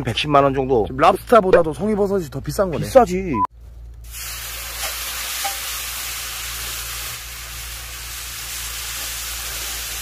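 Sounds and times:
meat sizzling on a griddle: 0:04.1 - 0:10.0.

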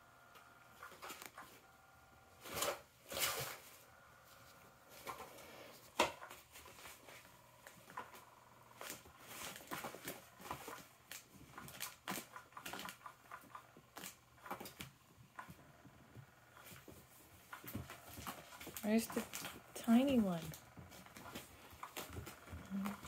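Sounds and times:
rustling and tapping of toy cover: 0:04.9 - 0:23.0.

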